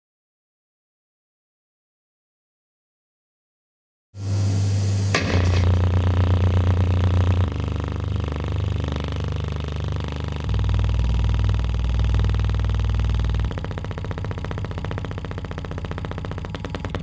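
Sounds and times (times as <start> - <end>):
deep bass test tones: 4.2 - 17.0.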